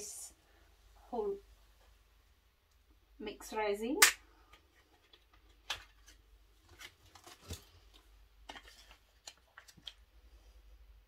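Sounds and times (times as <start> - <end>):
packet rustling and clicking: 4.8 - 10.2.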